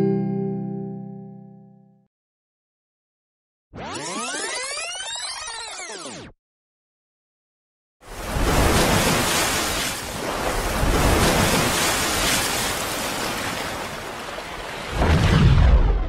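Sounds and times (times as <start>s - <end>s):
rushing water splash: 8.1s - 16.0s
deep boom: 15.0s - 16.0s.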